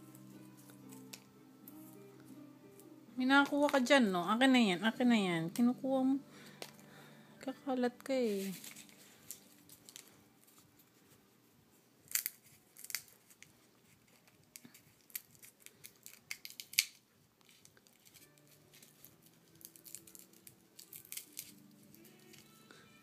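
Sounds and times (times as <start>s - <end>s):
nut shells clicking and crackling: 9.2s - 10.1s, 12.0s - 22.5s.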